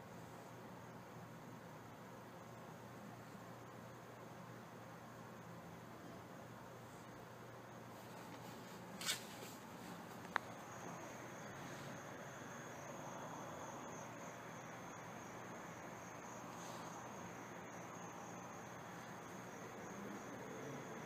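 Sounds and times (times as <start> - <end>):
faint high-pitched whine: 0.0 - 21.0
room hiss: 0.0 - 21.0
brief rustle: 8.0 - 10.5.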